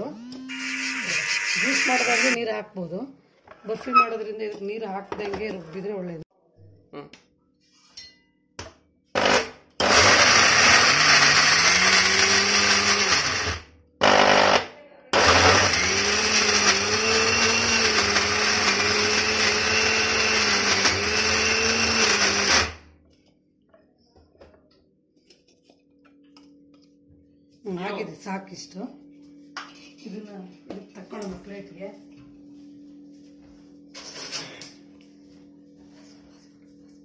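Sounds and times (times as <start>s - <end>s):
mixer grinder running in pulses: 0.0s - 2.4s, 9.3s - 14.6s, 15.2s - 22.8s.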